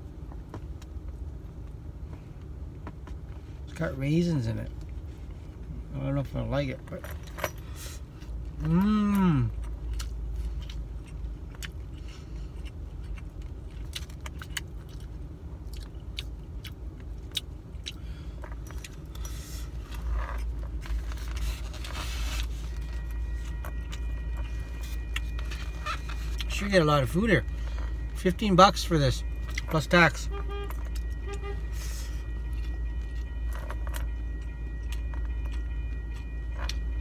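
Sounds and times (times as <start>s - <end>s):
steady low rumble: 0.0s - 37.0s
man chewing: 8.2s - 26.6s
man humming mmm: 8.6s - 9.6s.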